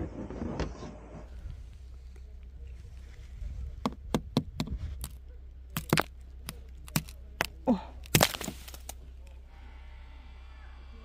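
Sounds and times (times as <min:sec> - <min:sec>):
ice cracking and snapping: 0:04.6 - 0:09.0.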